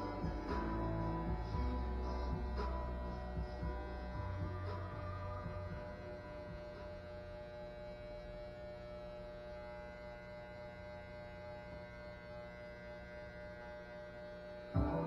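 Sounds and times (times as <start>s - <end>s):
electric hair clippers buzzing: 4.3s - 15.0s.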